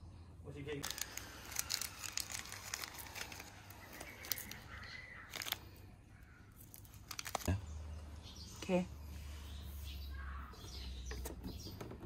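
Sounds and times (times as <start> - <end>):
plastic bag crinkling: 0.8 - 5.9, 6.5 - 7.6.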